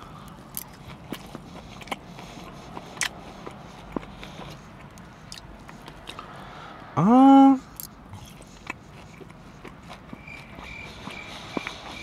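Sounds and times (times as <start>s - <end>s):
person chewing: 0.0s - 6.3s, 7.6s - 12.0s
steady low hum: 0.0s - 12.0s
wet mouth clicks and smacks: 4.8s - 6.2s.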